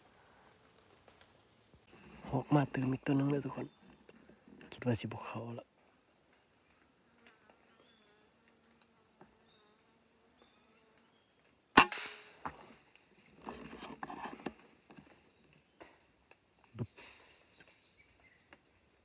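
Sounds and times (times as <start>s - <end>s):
rustling in leaves and branches: 0.0s - 4.6s, 12.2s - 19.0s
insects buzzing faintly: 0.0s - 19.0s
air rifle shot: 11.8s - 12.4s.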